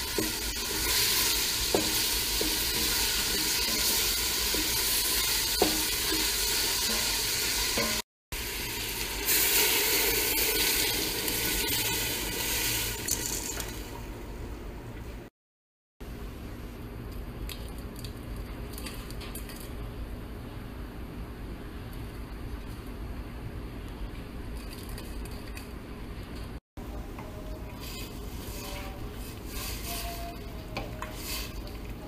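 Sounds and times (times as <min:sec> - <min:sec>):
vegetables sizzling in a pot: 0:00.0 - 0:14.0, 0:27.5 - 0:32.0.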